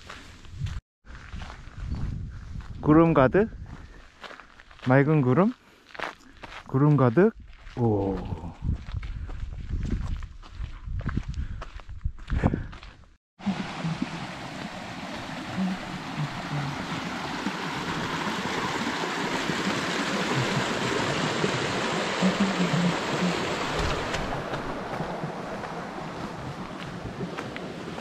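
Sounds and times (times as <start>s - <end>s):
stream rushing over rocks: 13.4s - 28.0s.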